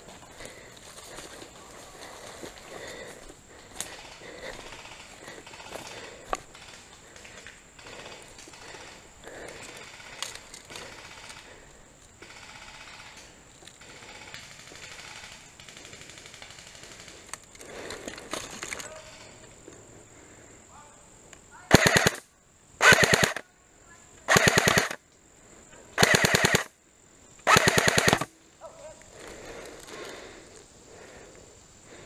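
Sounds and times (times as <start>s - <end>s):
airsoft gun full-auto bursts: 12.2s - 13.2s, 13.8s - 17.3s, 21.7s - 23.4s, 24.3s - 25.0s, 26.0s - 26.7s, 27.4s - 28.4s.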